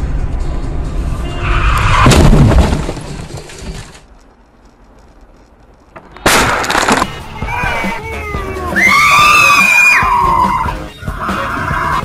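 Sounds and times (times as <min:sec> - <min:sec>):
road and engine rumble: 0:00.0 - 0:12.0
loud car crash: 0:01.5 - 0:03.9.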